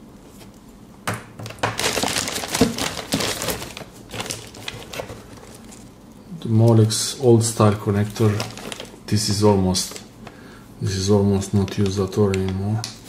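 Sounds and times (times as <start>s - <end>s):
cables rustling and clicking: 1.4s - 6.9s, 7.8s - 10.4s, 11.3s - 13.0s.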